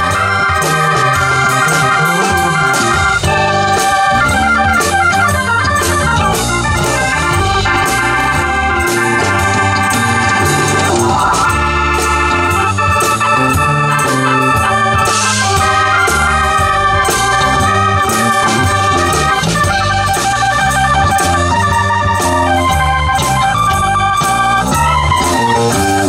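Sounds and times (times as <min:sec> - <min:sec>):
live rock band playing: 0:00.0 - 0:26.0
sustained keyboard chords: 0:00.0 - 0:26.0.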